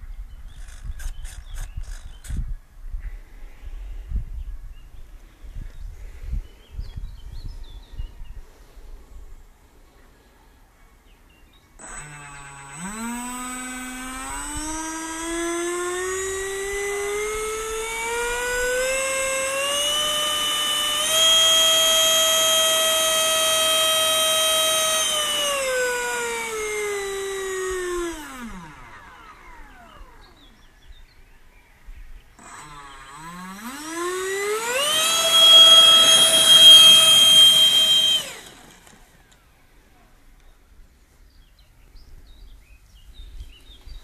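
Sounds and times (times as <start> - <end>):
electric ducted fan whine: 11.8 - 40.1.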